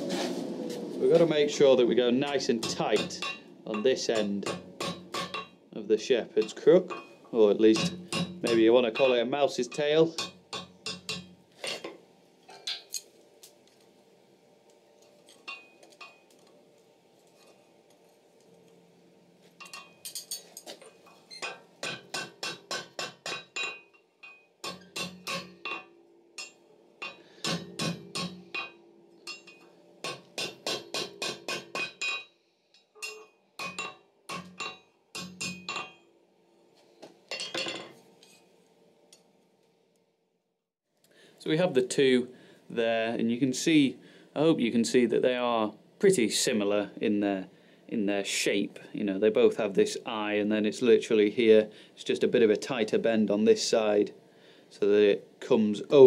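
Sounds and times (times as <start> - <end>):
hammer striking hot steel: 2.2 - 5.6, 6.4 - 11.9, 21.4 - 32.3, 33.0 - 36.1
anvil ringing: 2.3 - 5.6, 6.4 - 11.4, 21.4 - 32.3, 33.0 - 36.1.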